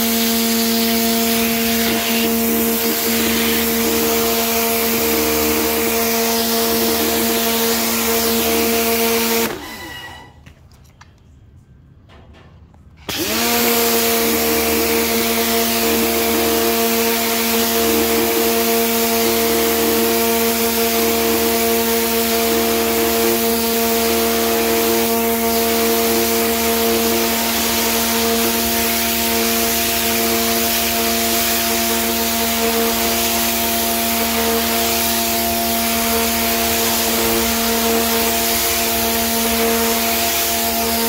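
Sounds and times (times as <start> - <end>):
water jet hissing on concrete: 0.0 - 9.5, 13.9 - 41.0
pressure washer motor hum: 0.0 - 10.1, 13.1 - 41.0.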